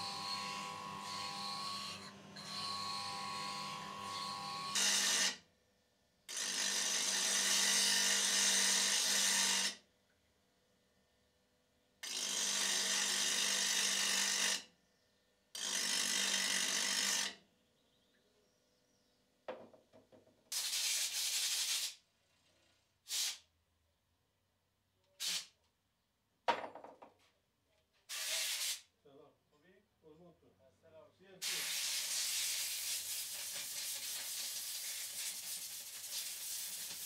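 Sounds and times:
compressed air hissing: 23.1s - 23.4s, 28.1s - 28.8s, 31.4s - 37.0s.

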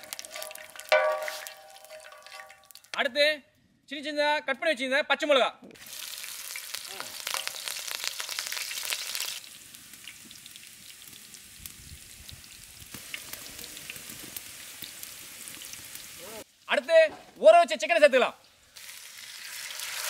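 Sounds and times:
chillies sizzling in hot oil: 0.0s - 3.0s, 5.8s - 16.8s, 18.4s - 20.0s
oil popping: 0.0s - 3.0s.

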